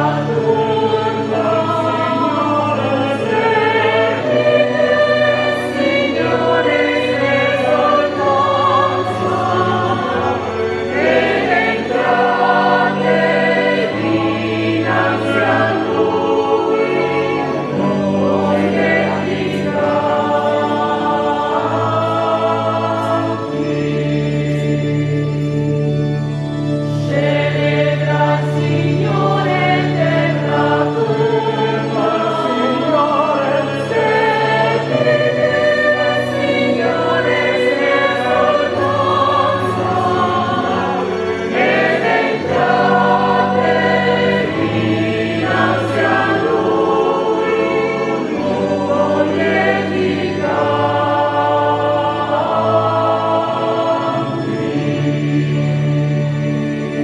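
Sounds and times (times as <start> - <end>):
choir singing a hymn: 0.0 - 57.0
sustained keyboard organ notes: 0.0 - 57.0.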